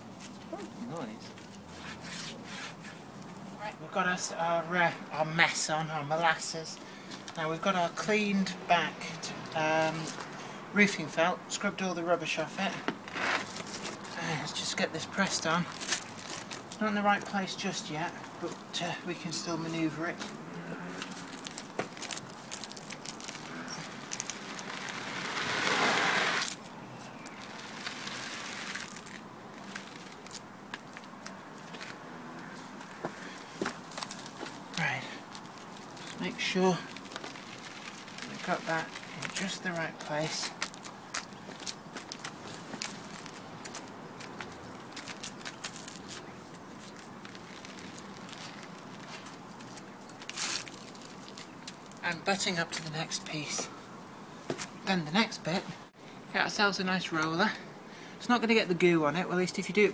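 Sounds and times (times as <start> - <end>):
roofing felt crackles and scrapes: 0.1 - 3.8, 13.0 - 17.4, 19.8 - 32.0, 32.6 - 52.0
gloved hands rubbing felt: 1.4 - 3.6, 21.0 - 30.3.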